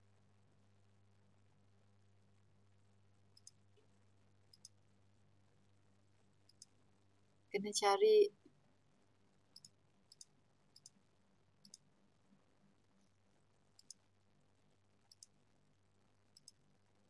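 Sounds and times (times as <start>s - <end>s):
computer mouse clicks: 3.3s - 3.9s, 4.5s - 4.8s, 6.5s - 6.8s, 9.6s - 11.0s, 11.6s - 11.9s, 13.8s - 14.0s, 15.1s - 15.4s, 16.3s - 16.6s.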